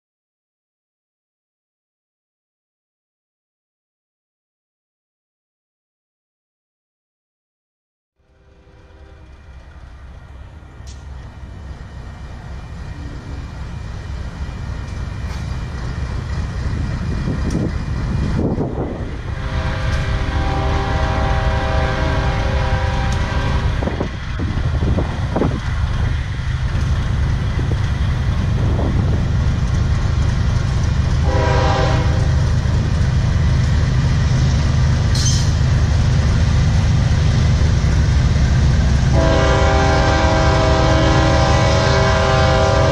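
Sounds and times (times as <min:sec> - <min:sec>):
train air horn blasts: 0:08.2 - 0:09.4, 0:19.4 - 0:23.8, 0:31.2 - 0:32.3, 0:39.1 - 0:42.9
diesel locomotive rumble: 0:08.3 - 0:42.9.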